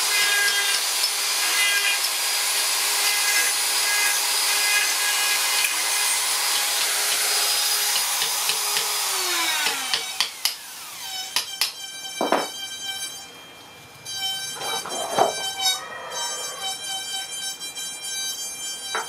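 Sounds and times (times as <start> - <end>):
power carving tool grinding wood: 0.0 - 13.3, 14.1 - 19.0
sharp knocks: 11.6 - 12.6.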